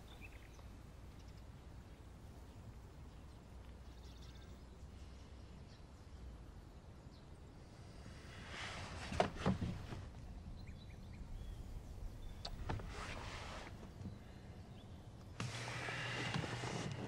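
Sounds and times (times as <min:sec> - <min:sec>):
faint bird chirps: 0:00.0 - 0:06.3, 0:10.4 - 0:13.1
rustling: 0:08.2 - 0:10.3, 0:12.4 - 0:14.2, 0:15.4 - 0:17.0.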